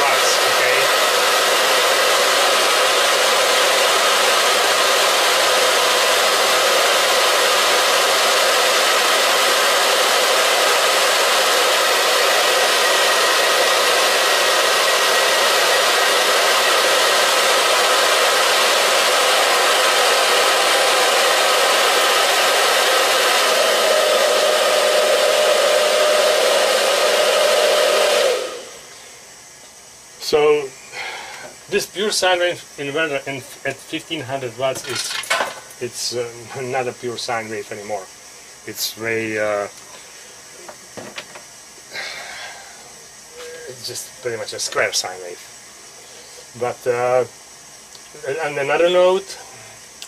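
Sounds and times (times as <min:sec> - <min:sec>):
hair dryer running: 0:00.0 - 0:29.2.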